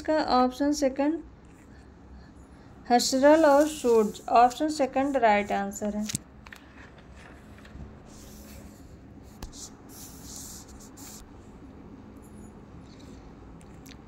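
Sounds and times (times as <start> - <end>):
scratching and rustling handling noise: 3.1 - 11.6.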